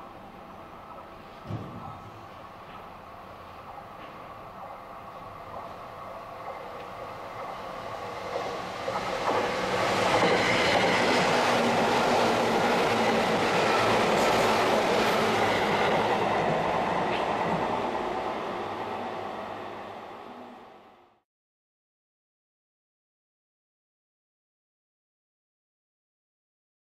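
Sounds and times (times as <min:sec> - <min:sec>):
electric train passing: 0:00.0 - 0:21.2.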